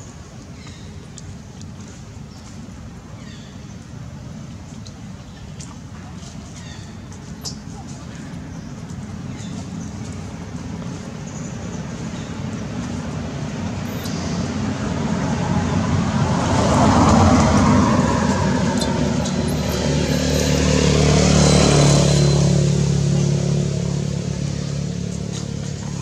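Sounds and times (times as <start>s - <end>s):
motor vehicles driving past: 8.8s - 26.0s
low engine drone: 13.1s - 26.0s.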